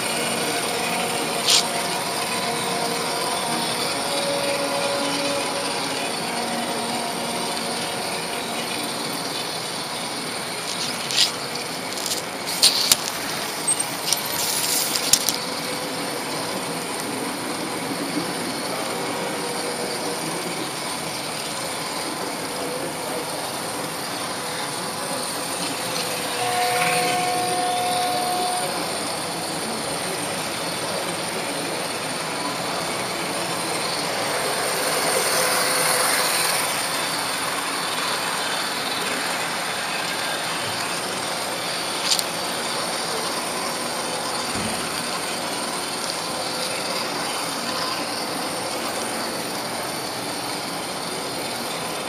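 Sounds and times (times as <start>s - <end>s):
model train wheels rattling: 0.8s - 2.0s, 8.6s - 15.5s, 41.9s - 42.4s
brief steady tone: 26.3s - 29.9s.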